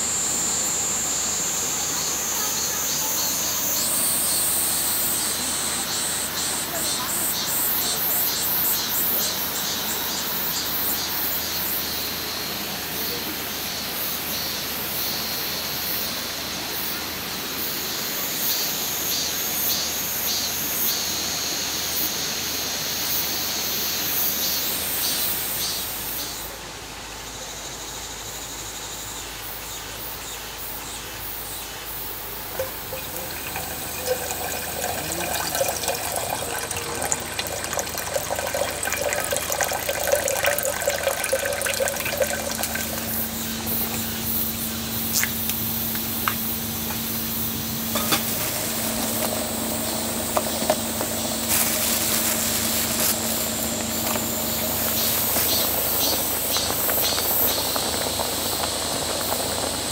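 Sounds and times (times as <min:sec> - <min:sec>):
water running and splashing: 0:32.5 - 0:59.9.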